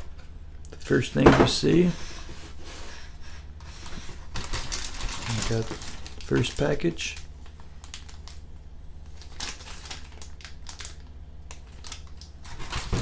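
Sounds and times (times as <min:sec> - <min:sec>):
plastic bag crinkling: 0:03.9 - 0:13.0.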